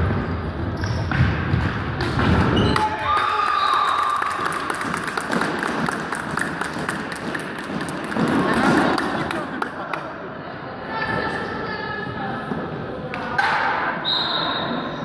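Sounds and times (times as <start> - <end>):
crowd shouting and cheering: 2.6 - 6.8
crowd clapping: 3.0 - 10.1.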